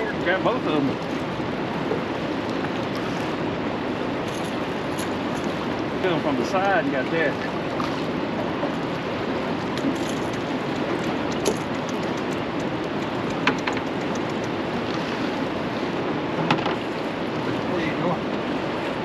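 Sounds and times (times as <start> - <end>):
choppy river water rushing: 0.0 - 19.0
wind on microphone: 7.4 - 19.0.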